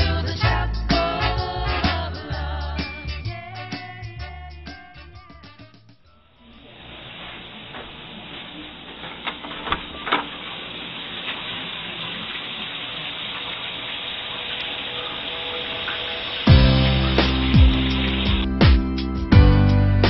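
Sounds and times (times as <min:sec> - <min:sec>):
shower spraying water: 0:06.6 - 0:18.6.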